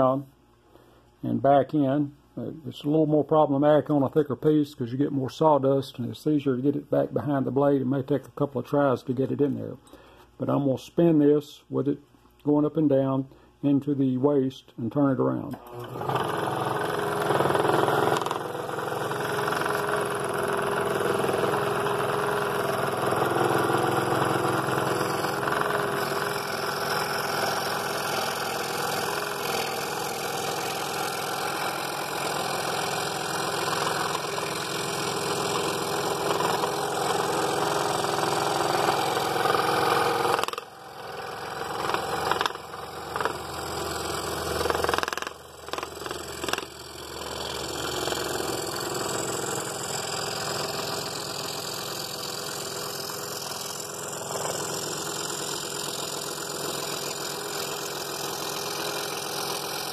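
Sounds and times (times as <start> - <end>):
scroll saw cutting wood: 15.5 - 59.9.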